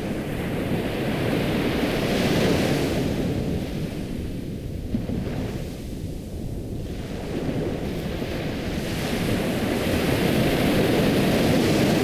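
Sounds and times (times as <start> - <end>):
ocean surf washing in: 7.0 - 12.0.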